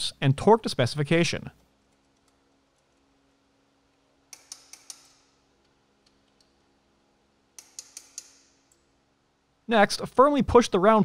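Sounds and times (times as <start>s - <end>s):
socket wrench ratcheting: 4.3s - 5.3s, 7.6s - 8.6s.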